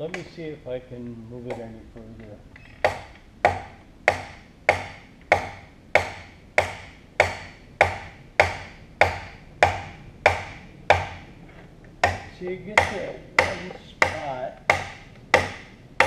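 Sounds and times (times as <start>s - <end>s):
hammer striking metal: 2.8s - 11.3s, 12.0s - 15.8s.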